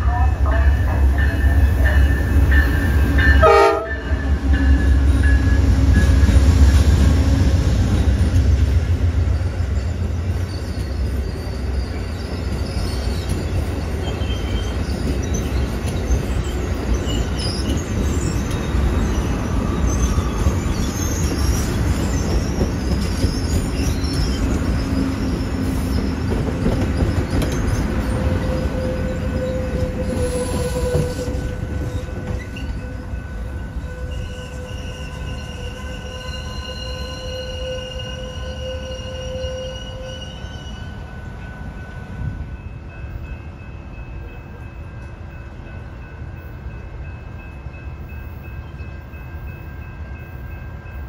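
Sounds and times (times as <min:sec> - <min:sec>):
train horn: 0:00.0 - 0:02.4, 0:03.2 - 0:04.5, 0:28.1 - 0:41.0
diesel train rumble: 0:00.0 - 0:40.1
wheel squeal: 0:09.3 - 0:13.4.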